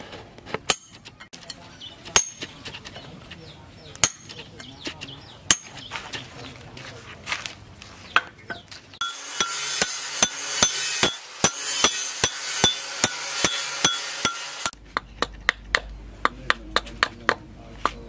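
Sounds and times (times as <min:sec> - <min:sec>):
hatchet chopping wood: 0:00.5 - 0:01.5, 0:02.1 - 0:02.6, 0:04.0 - 0:05.9, 0:09.0 - 0:18.0.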